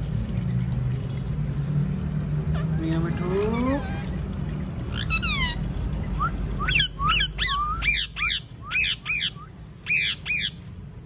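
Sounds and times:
parakeet sharp screeches: 4.9s - 5.6s, 6.7s - 10.6s
parakeet calling: 4.9s - 10.6s.

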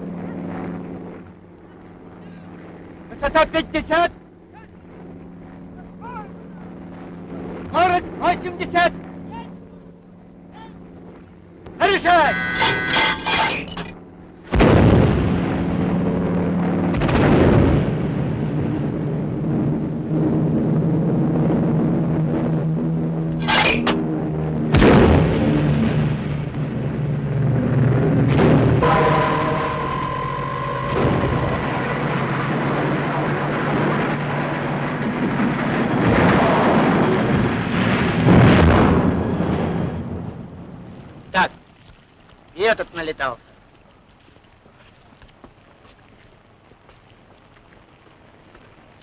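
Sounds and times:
low drone: 0.0s - 41.3s
falling warplane rumble: 0.0s - 41.8s
anti-aircraft gunfire: 12.6s - 40.8s
explosion blasts: 14.5s - 22.6s, 24.6s - 41.3s
loud crash: 28.2s - 40.2s.

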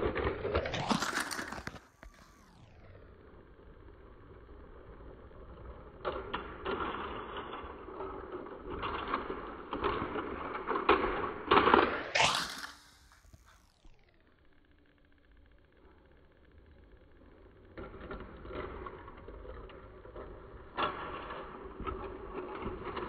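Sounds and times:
toy train clattering on plastic track: 0.0s - 2.0s, 5.6s - 13.2s, 17.7s - 23.0s.

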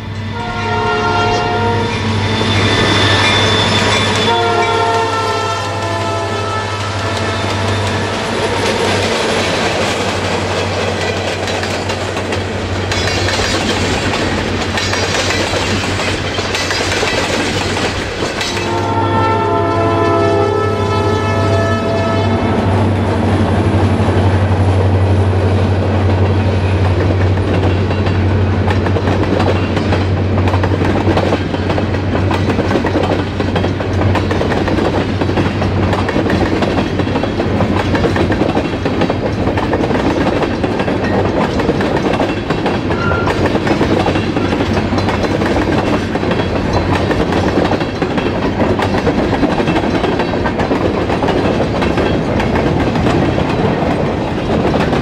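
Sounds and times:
locomotive engines droning: 0.0s - 55.0s
train wheels clacking over rail joints: 1.9s - 20.4s, 23.7s - 55.0s.

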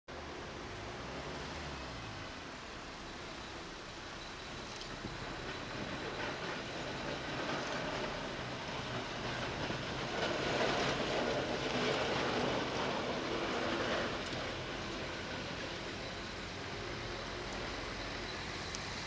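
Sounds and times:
street traffic: 0.1s - 19.0s
tram wheels rumbling on rails: 0.1s - 19.0s.

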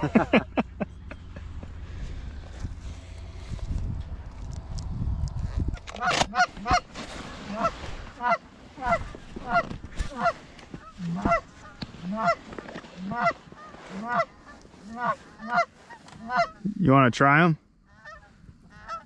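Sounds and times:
goose call honks: 6.0s - 6.9s, 7.5s - 16.8s, 17.9s - 19.0s.

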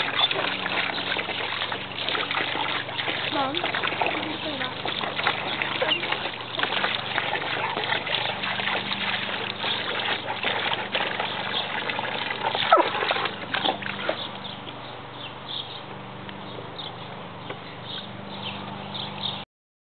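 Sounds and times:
dog biting at water: 0.0s - 14.3s
hose water splashing into pool: 0.0s - 14.4s
water trickling: 0.0s - 14.6s.

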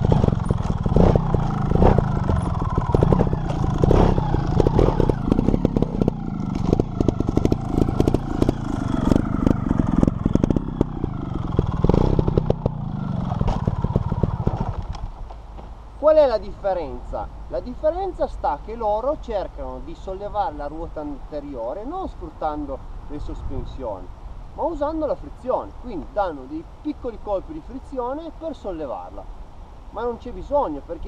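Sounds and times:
motorcycle engine surging: 0.0s - 15.3s
motorcycle clattering: 0.0s - 15.8s.

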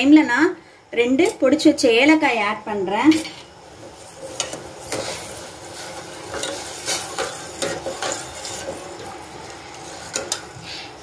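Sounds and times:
syrup sizzling: 3.6s - 11.0s
ladle scraping metal pot: 4.0s - 10.6s.

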